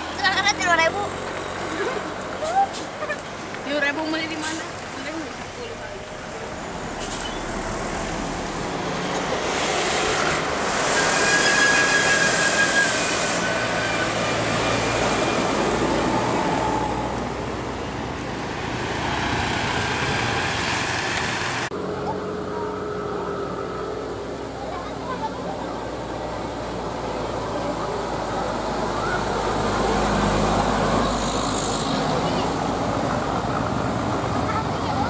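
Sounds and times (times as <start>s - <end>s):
diesel bus driving past: 0.0s - 35.0s
hiss: 9.3s - 13.7s.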